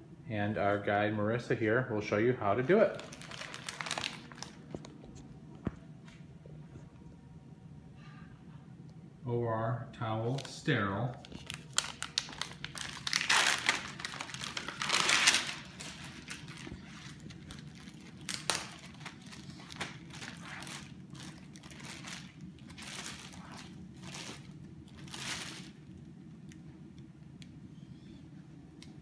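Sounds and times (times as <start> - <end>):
plastic packaging crinkling: 2.6 - 5.2, 10.3 - 27.1.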